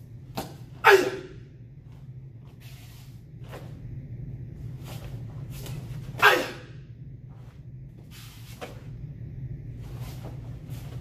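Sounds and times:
low room hum: 0.0s - 11.0s
person shouting: 0.8s - 1.4s, 6.2s - 6.8s.

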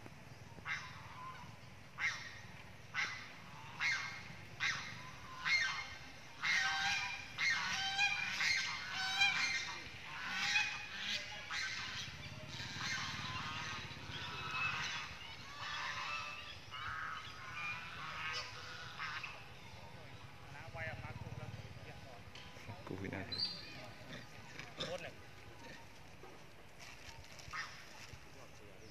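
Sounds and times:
macaque screeching: 3.0s - 19.3s.

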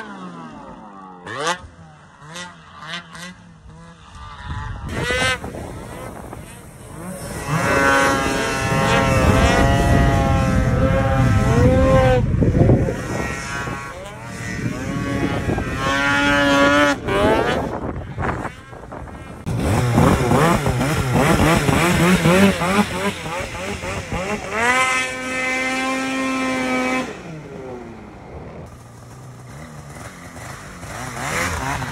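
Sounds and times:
snowmobile engine revving: 0.0s - 31.9s.

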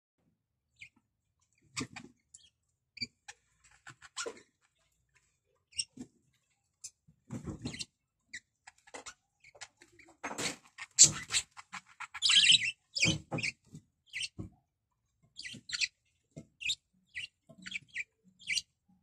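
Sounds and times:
budgerigars chirping: 7.6s - 14.4s, 15.3s - 16.0s, 16.6s - 18.7s.

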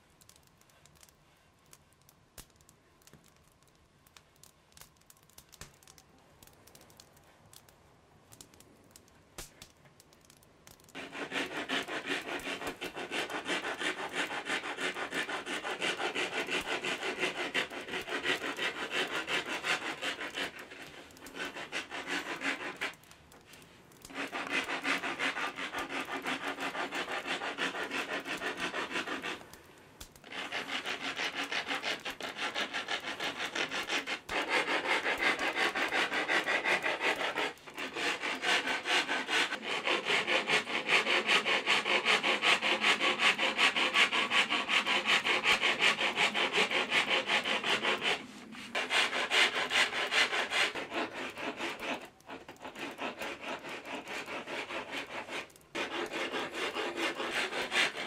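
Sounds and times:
hand tool rasping wood: 10.9s - 23.0s, 24.0s - 29.5s, 30.1s - 58.0s.

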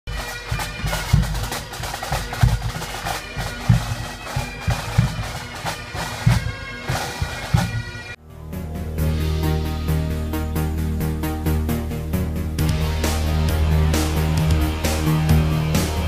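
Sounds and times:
bagpipes playing: 0.1s - 8.2s, 12.6s - 16.0s
bass drum beating: 0.5s - 8.0s, 11.2s - 16.0s.

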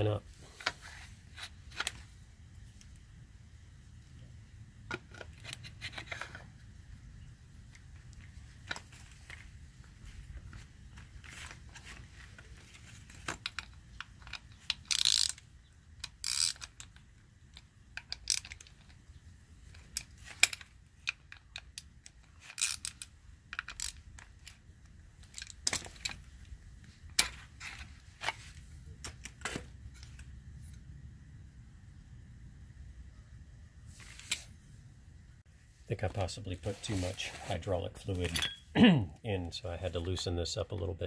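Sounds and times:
small metal clicks and scrapes: 4.9s - 6.6s, 7.7s - 30.8s
screwdriver turning screw: 16.0s - 17.0s.

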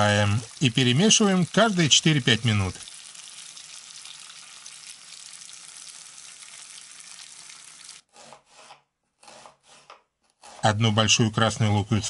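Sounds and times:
potatoes sizzling in hot oil: 0.0s - 8.0s.

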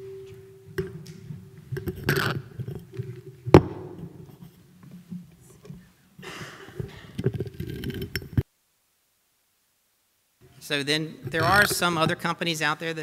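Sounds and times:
steady ringing tone: 0.0s - 2.9s.

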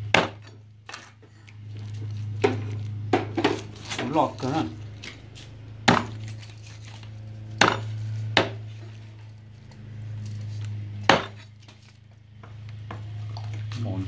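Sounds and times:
steady low hum: 0.0s - 14.0s
sharp knocks: 0.1s - 0.5s, 5.8s - 6.2s, 7.6s - 8.6s, 11.1s - 11.4s.

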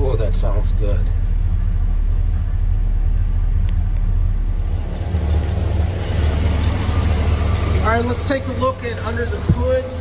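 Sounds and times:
truck engine idling: 0.0s - 10.0s.

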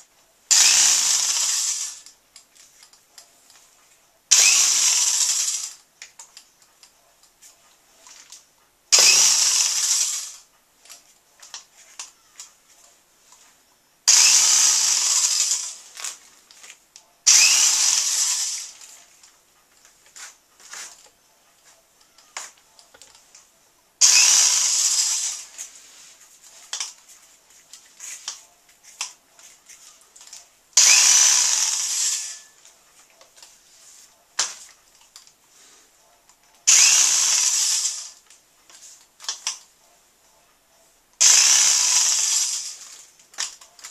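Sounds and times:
electric drill spinning: 0.5s - 2.1s, 4.3s - 5.8s, 8.9s - 10.5s, 14.1s - 16.2s, 17.3s - 19.0s, 24.0s - 25.8s, 30.8s - 32.6s, 36.7s - 38.2s, 41.2s - 43.1s
small clicks and knocks: 18.8s - 23.5s.

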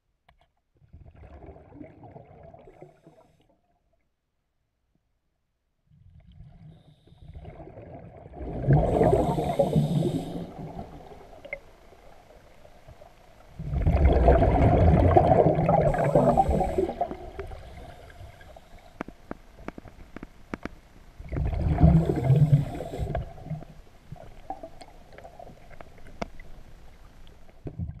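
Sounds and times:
underwater breath bubbling: 6.5s - 11.6s, 13.6s - 19.2s, 21.3s - 23.7s
faint sharp clicks: 18.8s - 20.8s, 24.8s - 26.5s.

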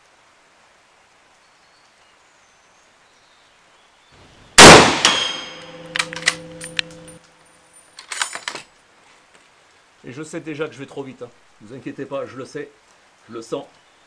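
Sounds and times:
light rain hiss: 0.0s - 14.0s
rifle shot: 4.6s - 7.1s
rifle bolt clicks and clanks: 4.6s - 7.2s, 8.0s - 8.7s
metallic ringing: 4.6s - 7.3s.

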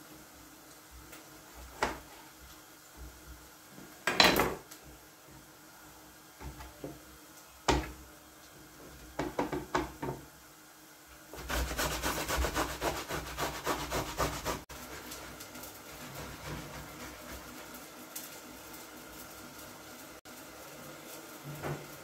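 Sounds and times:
tomato rasping on a grater: 11.3s - 18.0s.

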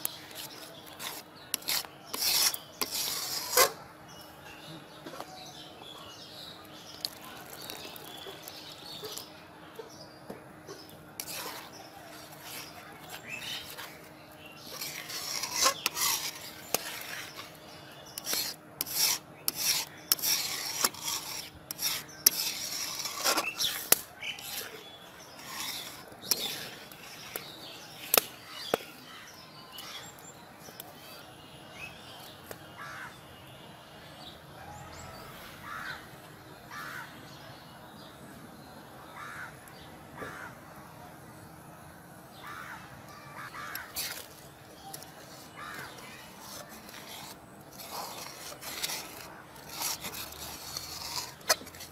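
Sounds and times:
metal spatula scraping pan: 0.1s - 3.8s, 11.2s - 28.8s, 43.8s - 51.9s.

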